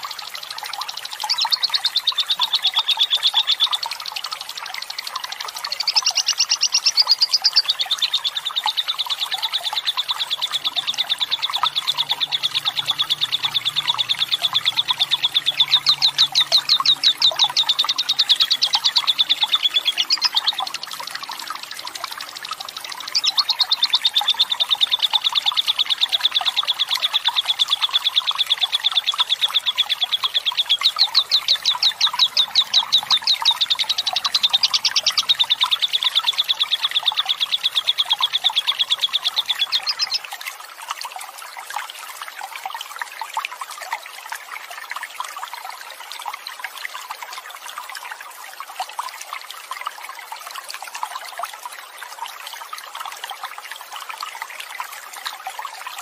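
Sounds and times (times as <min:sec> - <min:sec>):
running water hiss: 0:00.0 - 0:37.1
lovebird chattering trill: 0:05.7 - 0:07.9, 0:09.2 - 0:20.7, 0:22.3 - 0:40.2.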